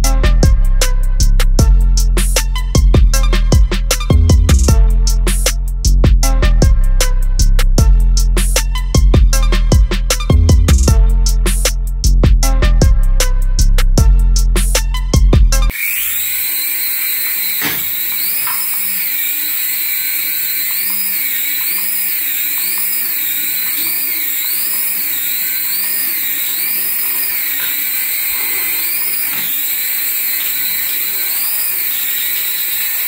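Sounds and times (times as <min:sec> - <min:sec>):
toy helicopter motor whining: 0:15.6 - 0:33.0.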